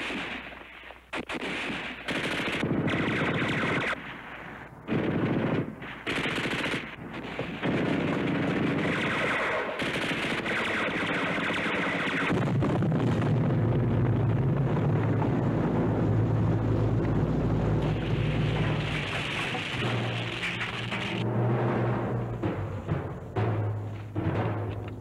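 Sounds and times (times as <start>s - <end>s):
machine gun firing in bursts: 0.0s - 13.4s, 18.0s - 21.2s.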